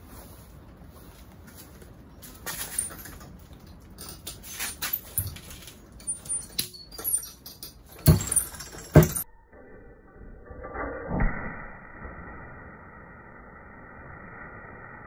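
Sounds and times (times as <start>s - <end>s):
metallic clicks and rattles: 2.4s - 9.3s.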